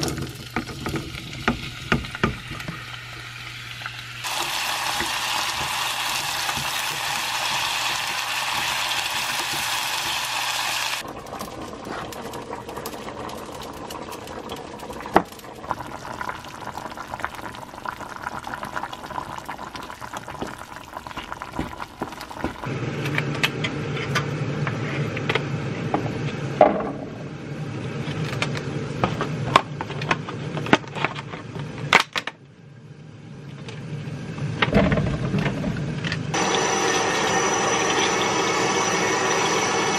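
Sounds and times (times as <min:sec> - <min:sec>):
vegetables sizzling in oil: 0:00.0 - 0:11.0, 0:36.4 - 0:39.9
curry bubbling: 0:04.2 - 0:22.7.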